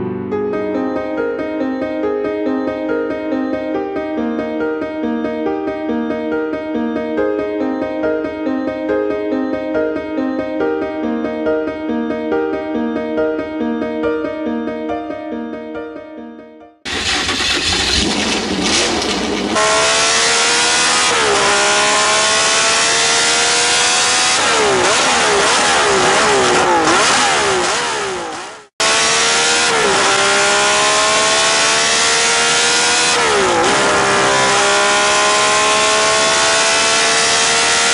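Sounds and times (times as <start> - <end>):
race car engine accelerating: 16.9 - 37.9.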